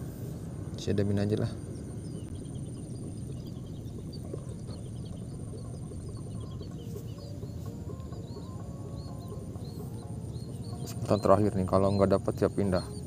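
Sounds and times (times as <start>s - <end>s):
birds chirping: 0.0s - 13.0s
steady low rumble: 0.0s - 13.0s.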